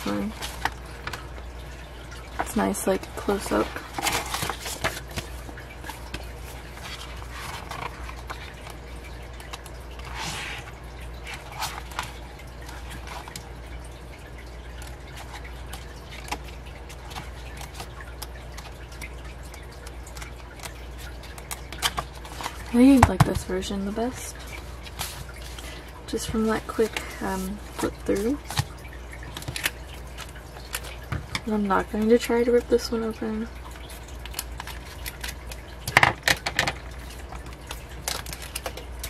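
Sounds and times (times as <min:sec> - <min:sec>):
pages rustling: 0:00.0 - 0:01.3, 0:03.3 - 0:08.8, 0:09.4 - 0:13.4, 0:24.4 - 0:31.1.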